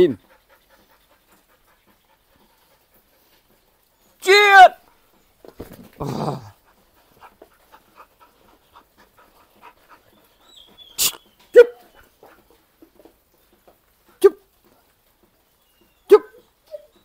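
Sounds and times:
dog panting: 0.0 - 4.2, 6.5 - 16.0.

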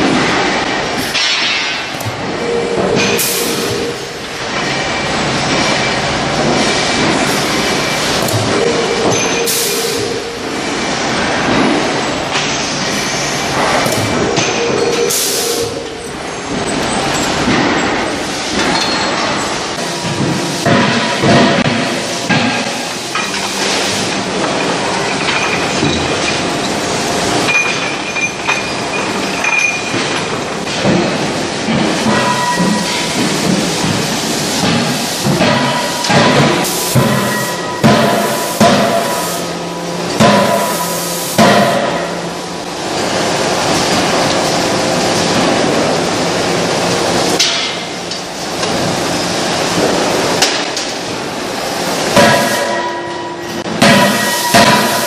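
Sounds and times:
rolling mill mechanical din: 0.0 - 55.0
sharp metallic clanks: 27.4 - 39.3, 52.1 - 55.0
high metal squeals: 32.1 - 33.2.

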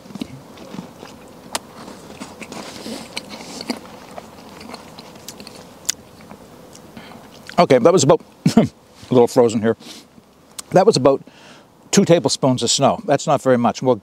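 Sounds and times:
person chewing snow: 0.0 - 7.6.

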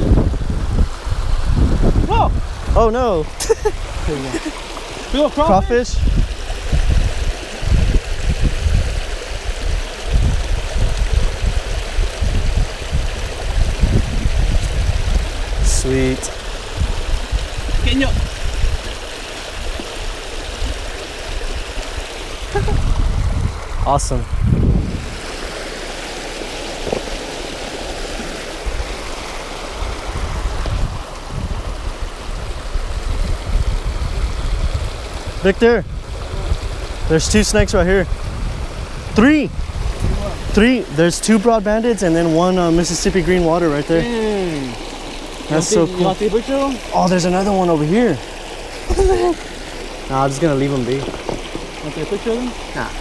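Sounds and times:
creek water rushing over rocks: 0.0 - 53.0
low rumbling: 0.0 - 53.0.

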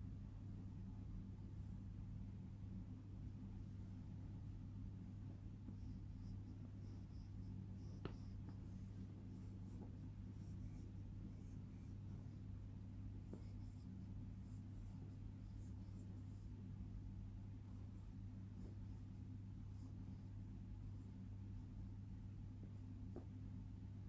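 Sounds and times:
low electrical hum: 0.0 - 24.0
pencil scratching on paper: 5.7 - 16.7.

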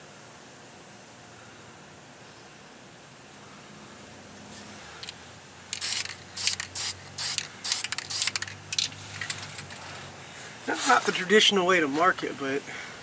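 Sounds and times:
spray can hissing squirts: 5.7 - 9.3.

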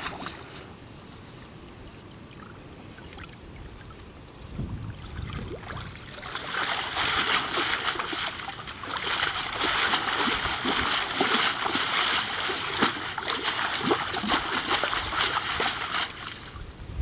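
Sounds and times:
water splashing: 4.9 - 16.6
water pouring through mesh: 5.3 - 16.6.

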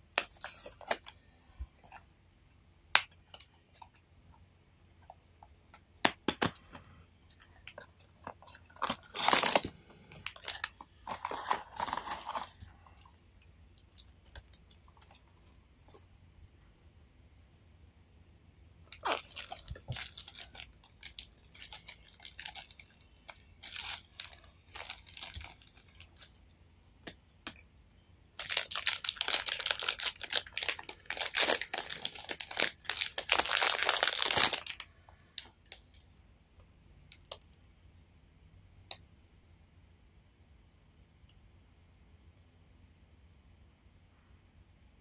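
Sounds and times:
foil wrapper crinkling and tearing: 8.4 - 12.7, 18.9 - 26.3, 28.4 - 36.0.

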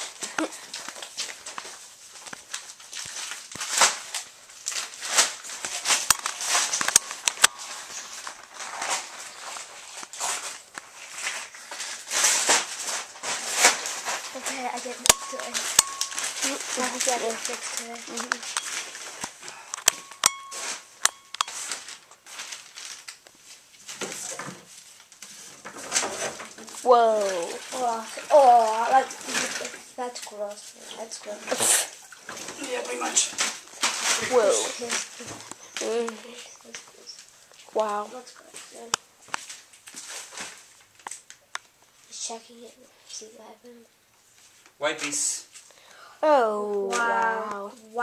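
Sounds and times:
phone handling rustling: 5.6 - 9.0, 15.0 - 22.0
sharp clicks: 18.2 - 20.4.

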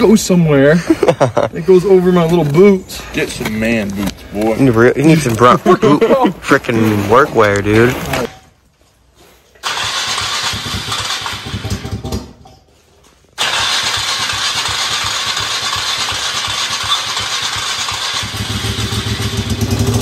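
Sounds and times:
engine starting and idling: 9.6 - 12.4, 13.4 - 20.0.

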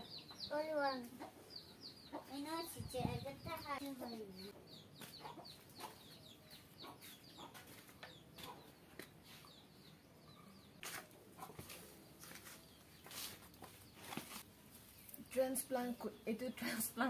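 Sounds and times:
chicks peeping: 0.0 - 10.8.

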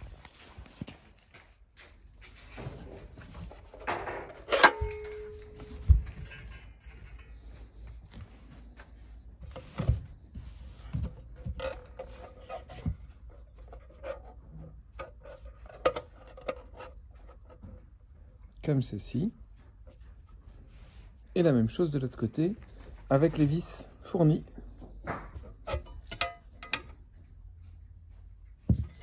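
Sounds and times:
metal clink: 4.4 - 7.4, 25.7 - 27.0.

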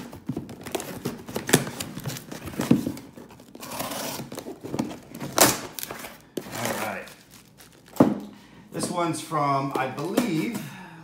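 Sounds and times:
tape tearing: 0.0 - 8.0
cardboard scraping and crinkling: 0.0 - 8.1.

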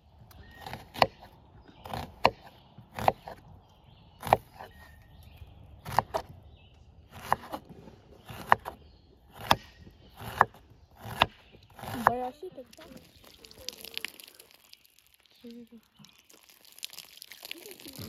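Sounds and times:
knife chopping on cutting board: 7.2 - 7.7.

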